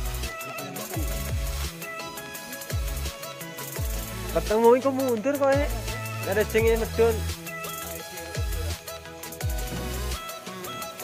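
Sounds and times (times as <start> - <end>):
electronic dance music: 0.0 - 11.0
deep bass drops: 9.5 - 10.3.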